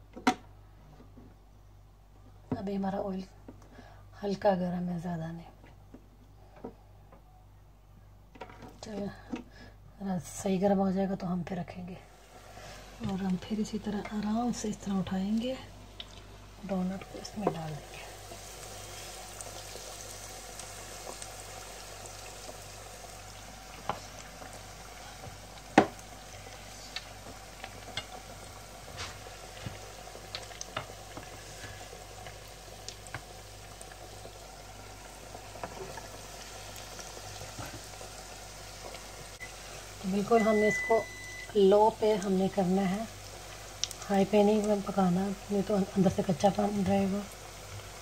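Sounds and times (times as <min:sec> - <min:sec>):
oil sizzling in deep fryer: 0:12.1 - 0:48.0.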